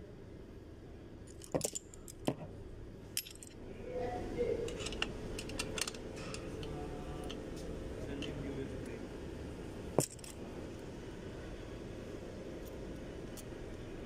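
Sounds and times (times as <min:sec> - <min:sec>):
metal brake parts clinking: 0:01.3 - 0:02.4, 0:03.2 - 0:03.6, 0:04.7 - 0:07.4, 0:10.0 - 0:10.4.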